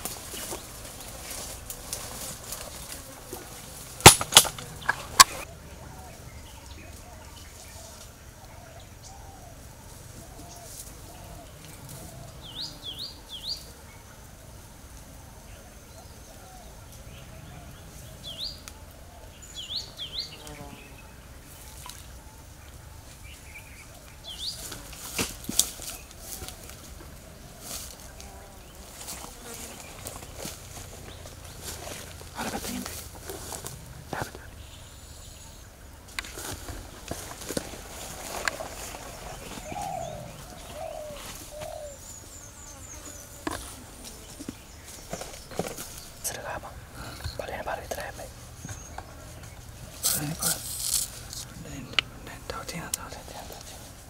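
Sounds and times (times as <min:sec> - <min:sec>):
dove cooing: 0:07.8 - 0:12.9, 0:36.8 - 0:44.5.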